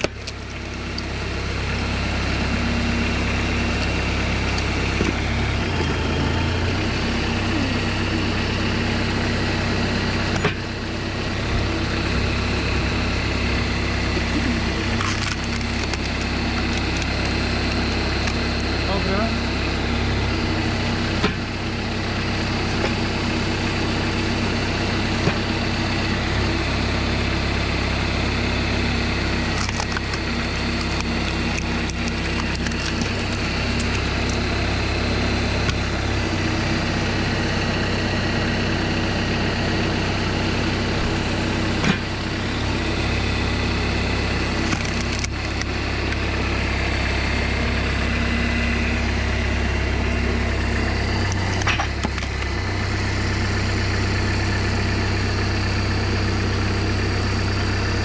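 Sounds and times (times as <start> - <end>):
logs splitting with sharp cracks: 0.0 - 1.6, 14.9 - 18.7, 29.3 - 36.4, 44.4 - 46.2, 51.2 - 52.6
tractor engine running: 0.0 - 58.0.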